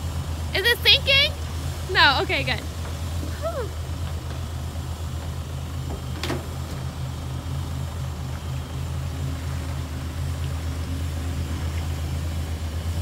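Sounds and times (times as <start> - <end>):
boat engine droning: 0.0 - 13.0.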